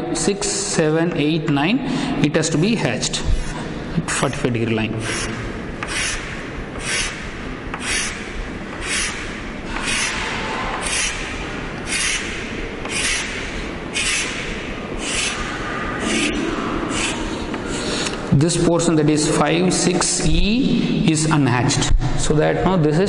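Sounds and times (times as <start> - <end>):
chalk scraping on chalkboard: 5.0 - 7.2, 7.8 - 8.2, 8.8 - 11.3, 11.9 - 12.3, 12.9 - 13.4, 14.0 - 14.4, 15.0 - 15.5, 16.9 - 17.4.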